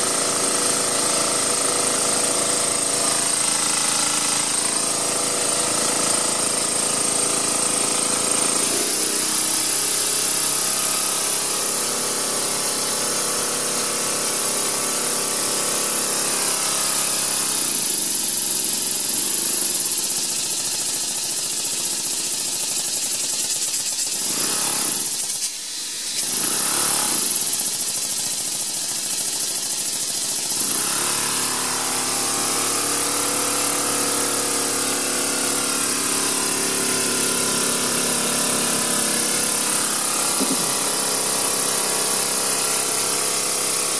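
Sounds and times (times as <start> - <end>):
steam hissing: 17.9 - 43.6.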